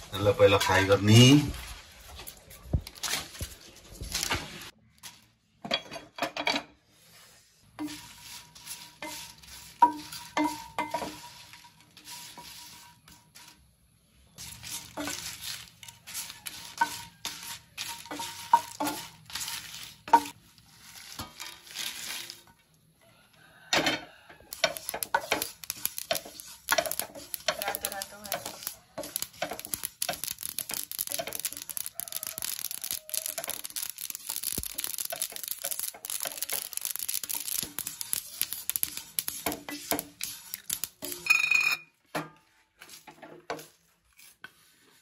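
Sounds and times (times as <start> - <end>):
wooden spatula scraping frying pan: 6.7 - 22.7, 24.3 - 41.4, 42.1 - 45.0.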